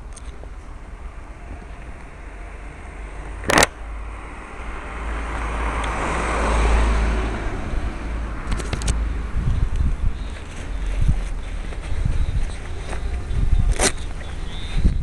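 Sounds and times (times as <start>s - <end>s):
camera handling rumble: 3.4s - 3.8s, 8.4s - 9.0s, 9.7s - 15.0s.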